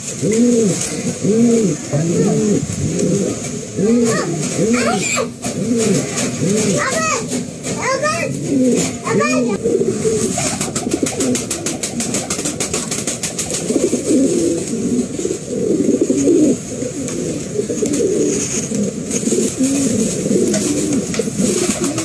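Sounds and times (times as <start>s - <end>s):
pigeons cooing: 0.0s - 22.0s.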